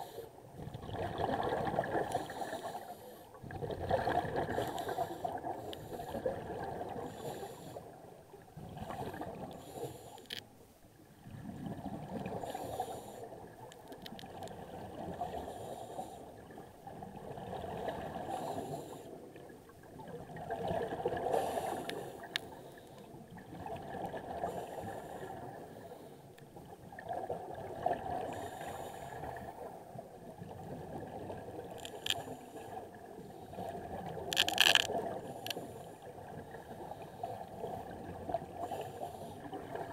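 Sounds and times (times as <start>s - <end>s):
bubbles gurgling underwater: 0.6s - 2.6s, 3.4s - 7.1s, 11.2s - 12.6s, 19.3s - 21.6s, 23.3s - 24.5s
hissing regulator inhalations: 9.6s - 10.4s.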